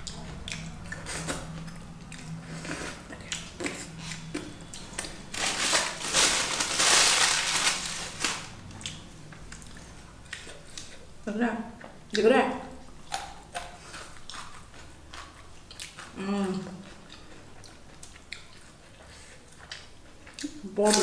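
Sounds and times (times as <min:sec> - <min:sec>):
chewing and finger smacks: 0:00.0 - 0:05.2, 0:13.0 - 0:16.2, 0:16.8 - 0:20.6
loud food crunching: 0:00.0 - 0:11.0.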